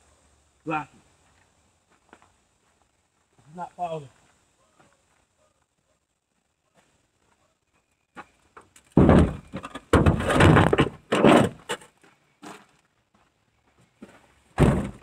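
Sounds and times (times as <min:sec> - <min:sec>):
knocks and scraping on truck bed: 0:08.2 - 0:12.6, 0:14.5 - 0:15.0.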